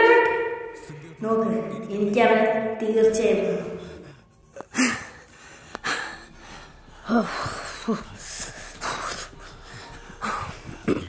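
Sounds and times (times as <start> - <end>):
man breathing hard: 3.7 - 11.0
man gasping: 3.7 - 11.0.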